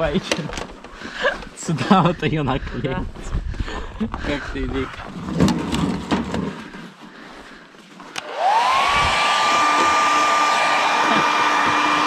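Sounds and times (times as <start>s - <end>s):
heat gun fan whine: 8.2s - 12.0s.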